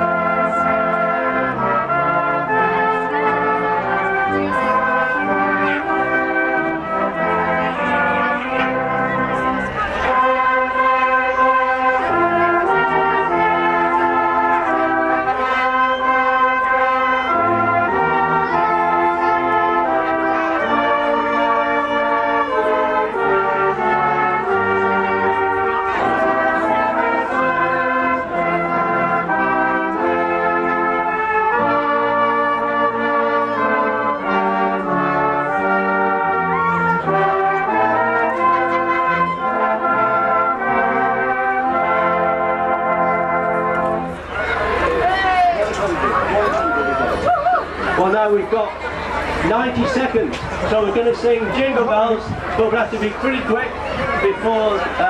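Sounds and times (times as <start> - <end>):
brass band playing: 0.0 - 55.0.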